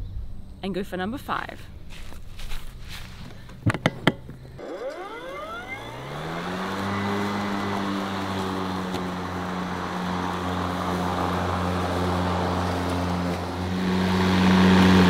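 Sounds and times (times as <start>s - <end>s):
electric lawn mower humming: 4.6s - 15.0s.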